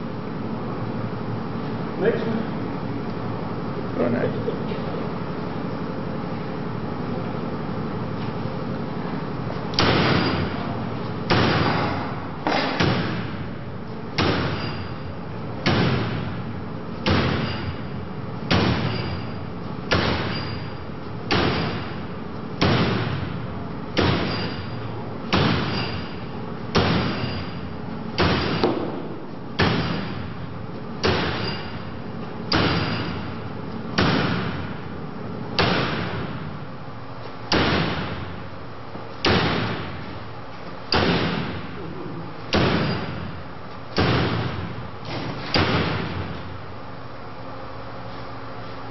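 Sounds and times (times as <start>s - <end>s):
axe striking metal wire mesh: 9.8s - 10.5s, 18.5s - 19.2s, 19.9s - 20.7s, 24.0s - 24.7s, 26.7s - 27.6s, 29.6s - 30.2s, 31.0s - 31.8s, 32.5s - 33.2s, 40.9s - 41.5s, 42.5s - 43.2s, 43.9s - 46.2s.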